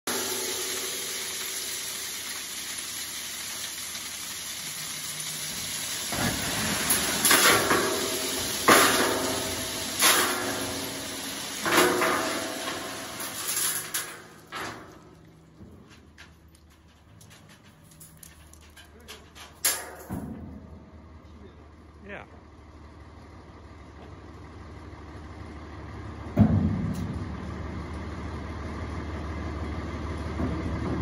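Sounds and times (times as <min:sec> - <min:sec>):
rocks pouring onto gravel: 0:00.1 - 0:15.0.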